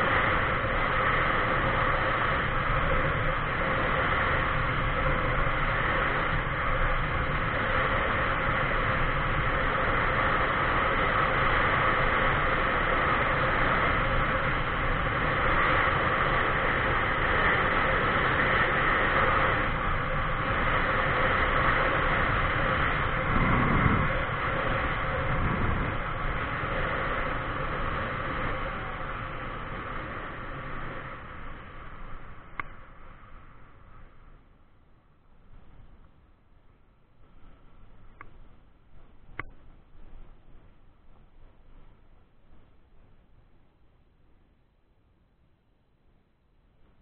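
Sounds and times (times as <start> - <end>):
wind on microphone: 0.0 - 32.7
vehicle road noise: 0.0 - 34.6.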